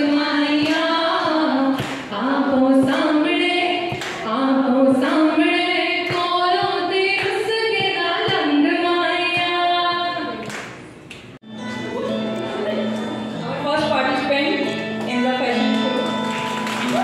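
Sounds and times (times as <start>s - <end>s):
woman singing into microphone: 0.0s - 10.5s.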